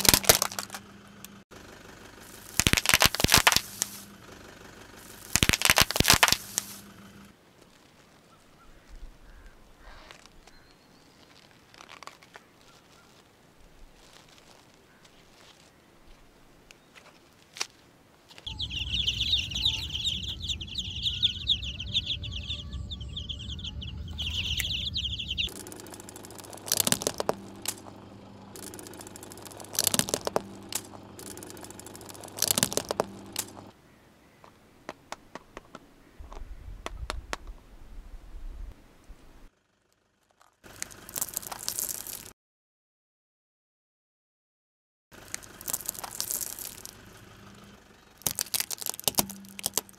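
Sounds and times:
objects cracking under car tyre: 0.0 - 1.4, 2.2 - 4.2, 5.0 - 7.0, 8.8 - 18.5, 25.4 - 33.7, 39.8 - 42.3, 45.2 - 47.4, 48.1 - 49.9
soft crackling: 2.2 - 4.2, 4.9 - 20.6
chick-like peeping: 18.5 - 27.4
low rumble: 18.5 - 33.7.

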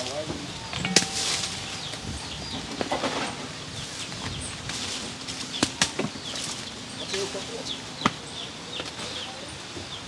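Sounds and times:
high bird chirps: 0.5 - 4.0.

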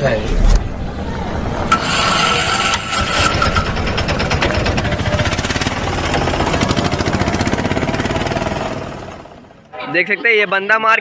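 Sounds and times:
small engine running: 1.7 - 9.6.

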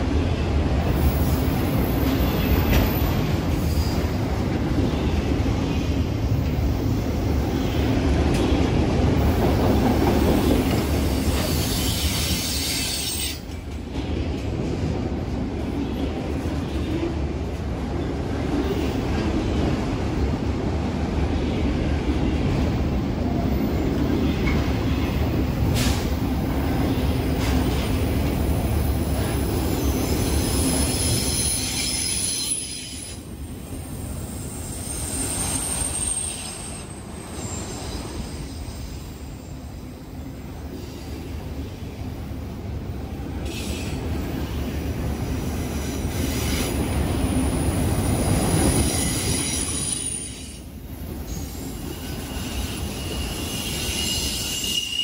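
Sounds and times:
high-pitched wheel squeal: 48.6 - 50.6, 51.3 - 55.0.

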